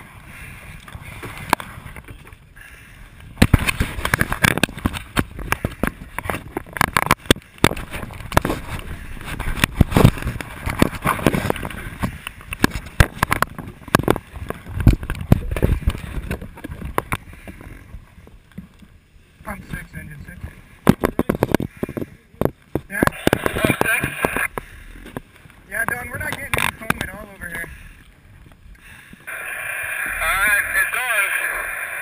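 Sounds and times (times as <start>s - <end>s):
hand handling camera: 3.4s - 17.8s
fabric rubbing on microphone: 23.1s - 24.5s.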